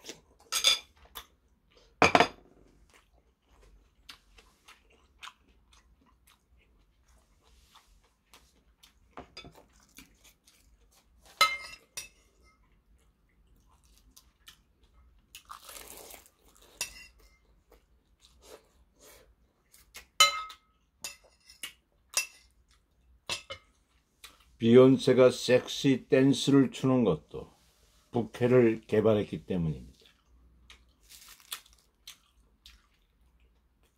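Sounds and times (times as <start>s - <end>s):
soft chewing: 2.6s - 24.6s, 29.6s - 33.9s
metal spoon clinking on porcelain bowl: 20.2s - 21.2s.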